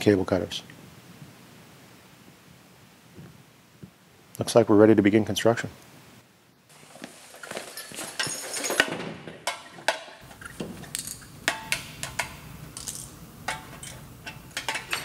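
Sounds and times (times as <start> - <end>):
metallic clicks and clinks: 10.8 - 15.0.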